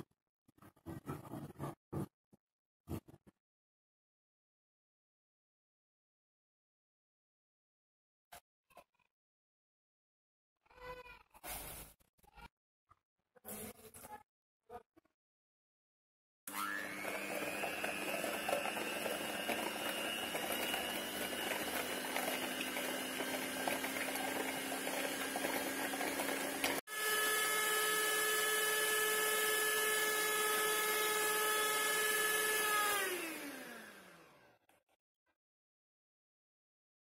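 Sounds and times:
electric hand mixer whirring: 16.5s - 34.6s.

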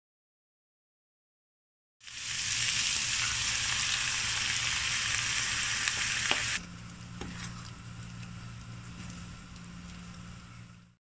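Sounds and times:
food sizzling in frying pan: 2.0s - 6.6s
low steady hum: 2.1s - 11.0s.

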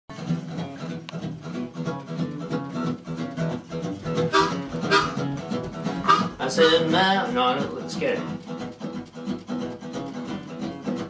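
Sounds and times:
acoustic guitar strumming blues: 0.1s - 11.0s
harmonica playing: 4.2s - 5.4s, 6.0s - 7.1s.

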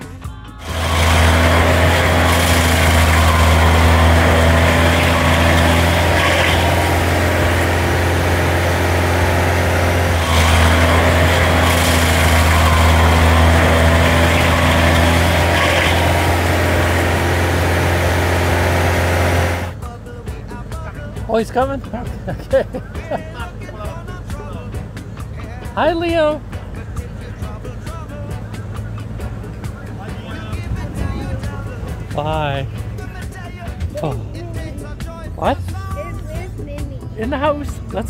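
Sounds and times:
cutting wheel grinding stump: 0.6s - 22.2s
stump grinder engine running: 0.6s - 22.4s.

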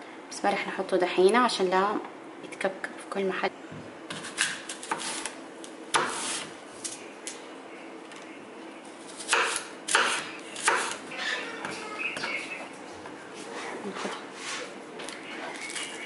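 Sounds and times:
knife cutting apple: 4.1s - 7.0s.

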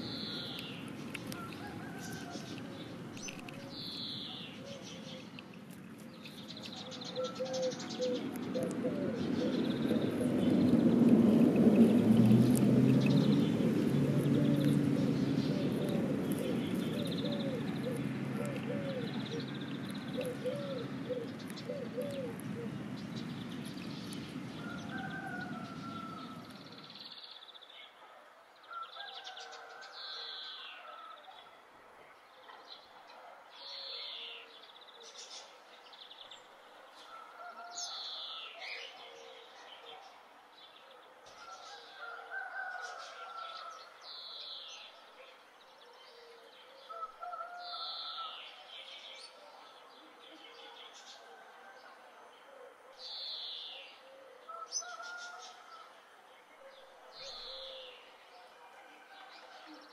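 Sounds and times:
low rumbling noise: 9.0s - 21.6s.

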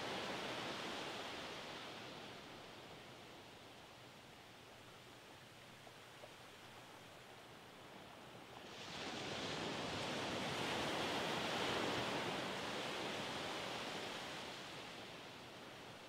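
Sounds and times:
wave washing up beach: 8.6s - 15.1s.

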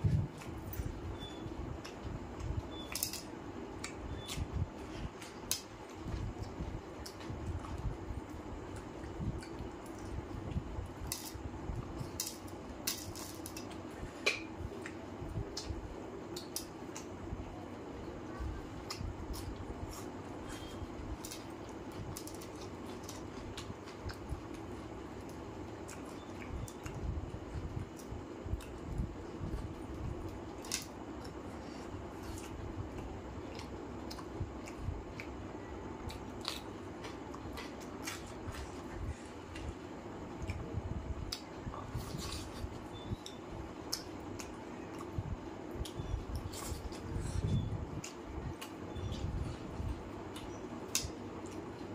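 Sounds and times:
low steady hum: 0.0s - 51.9s
chewing and mouth sounds: 18.4s - 51.9s.

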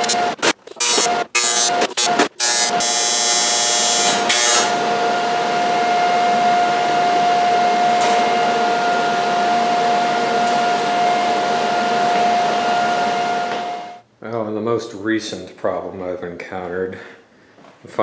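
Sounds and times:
machine whir with hum: 0.0s - 14.0s
welding arc buzz: 0.0s - 14.0s.

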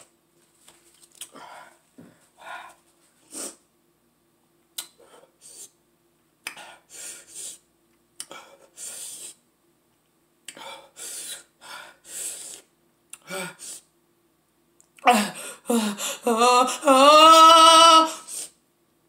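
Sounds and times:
woman sniffing: 8.4s - 9.4s, 10.6s - 13.9s.

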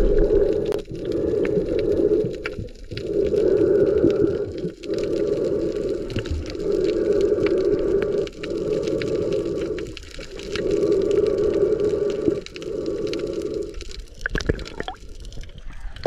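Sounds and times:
underwater rushing hum: 0.0s - 2.2s
faint clicks and crackles: 0.0s - 16.0s.

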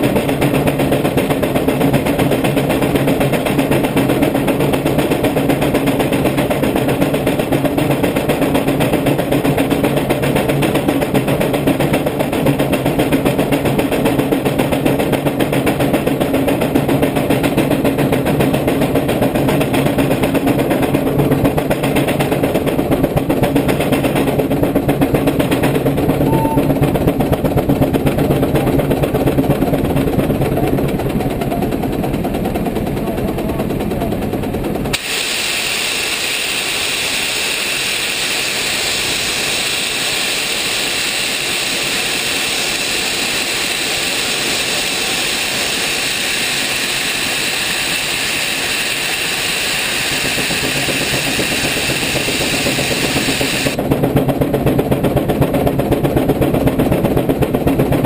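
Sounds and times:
steam engine exhaust beating: 0.0s - 58.0s
steam hissing: 34.9s - 53.8s.

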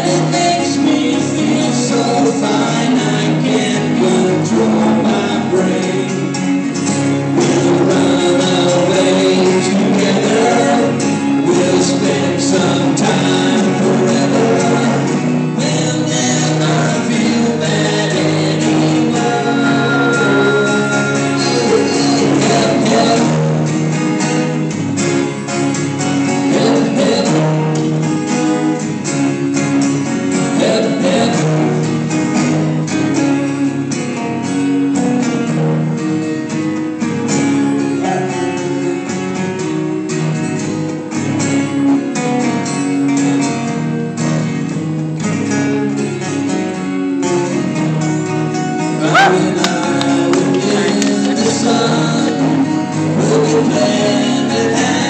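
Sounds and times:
man singing into a microphone: 0.0s - 23.7s, 26.3s - 27.8s, 30.4s - 31.8s, 38.0s - 38.8s, 49.0s - 55.0s
acoustic guitars strummed: 0.0s - 55.0s.

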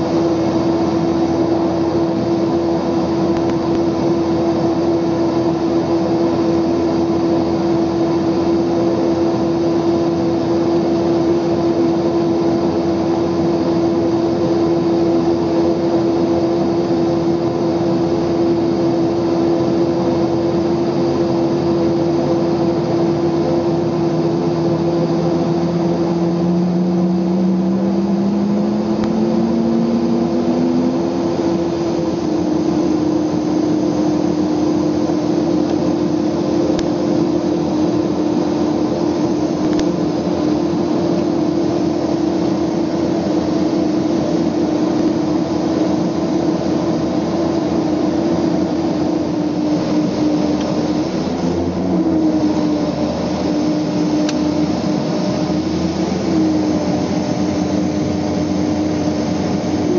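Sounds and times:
turboprop engine whine: 0.0s - 59.9s
engine starting with rising tone: 19.9s - 59.9s.

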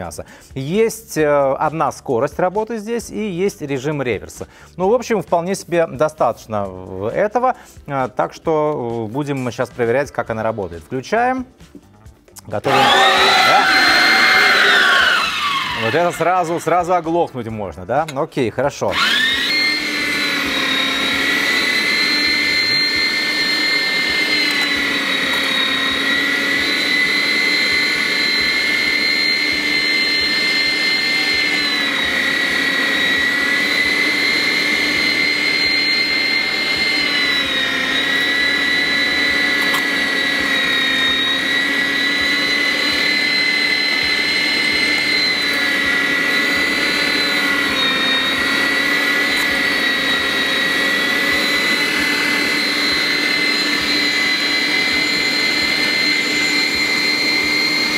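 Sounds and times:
meat grinder motor whine: 12.6s - 17.3s, 18.9s - 57.9s.

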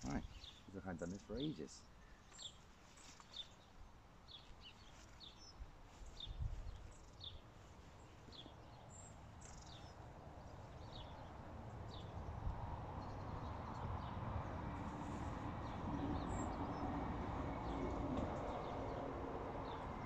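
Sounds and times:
small bird chirping: 4.3s - 11.3s.

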